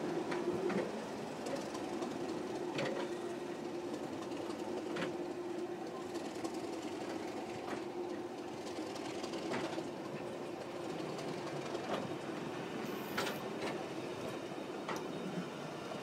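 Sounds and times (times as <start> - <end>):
train wheels clicking over rail joints: 12.8 - 13.8.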